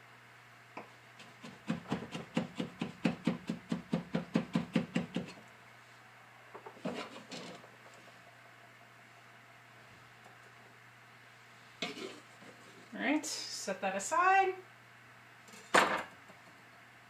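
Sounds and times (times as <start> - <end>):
knife chopping on wooden board: 1.2 - 5.3.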